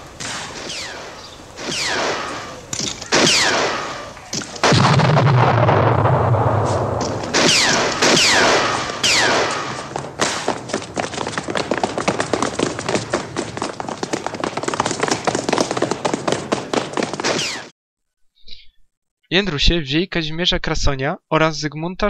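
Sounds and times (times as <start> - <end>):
gunshots with ricochet whine: 0.0 - 10.9, 17.0 - 17.7
loud hit with low rumble: 4.6 - 9.4.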